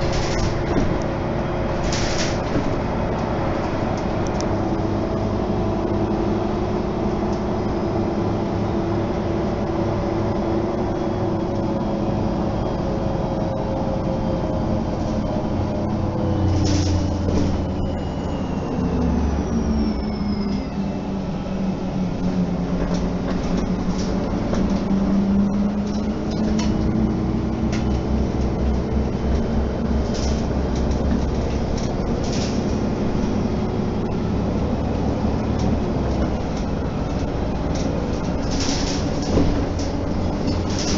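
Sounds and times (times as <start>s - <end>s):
bus engine running: 0.0s - 40.9s
interior fittings rattling: 35.5s - 40.9s.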